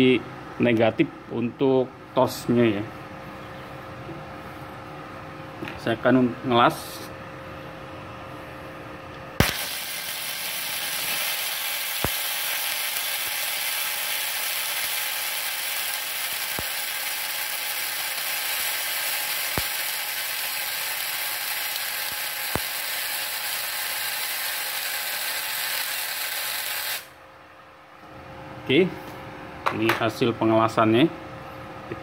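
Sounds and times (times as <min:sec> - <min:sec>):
sharp welding pops: 0:09.4 - 0:27.2
welding arc hissing: 0:09.4 - 0:27.2.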